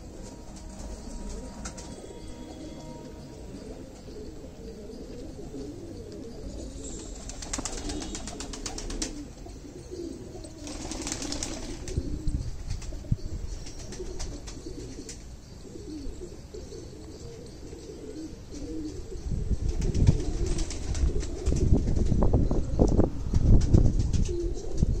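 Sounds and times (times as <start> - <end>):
pigeons cooing: 0.0 - 21.8, 24.1 - 25.0
wings flapping: 7.0 - 9.2, 10.6 - 12.0, 19.8 - 22.1.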